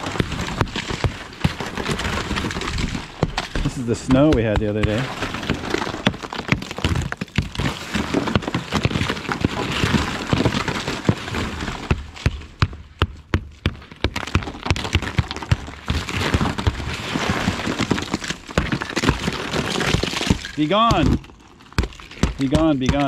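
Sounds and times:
ice cracking: 0.0s - 23.0s
rubber mallet knocking on ice: 2.9s - 9.6s, 19.9s - 23.0s.

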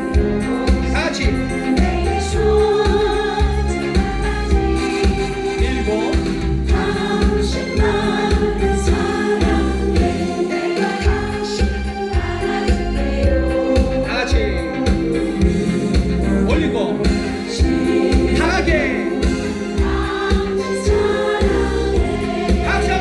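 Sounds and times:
group singing in unison: 0.0s - 5.6s, 6.4s - 14.0s, 17.4s - 23.0s.

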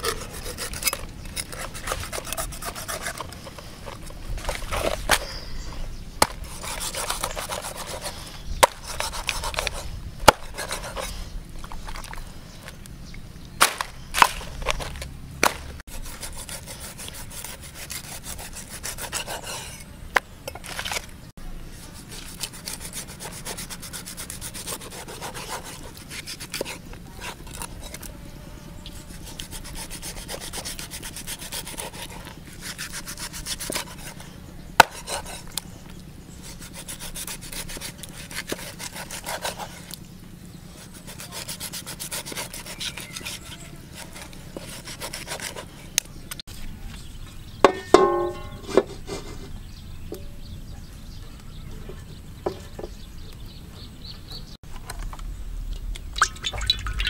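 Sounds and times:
knife slicing and scraping flesh: 0.0s - 5.2s, 6.2s - 11.2s, 13.6s - 19.9s, 22.0s - 28.1s, 29.1s - 35.7s, 36.4s - 40.0s, 40.8s - 45.8s.

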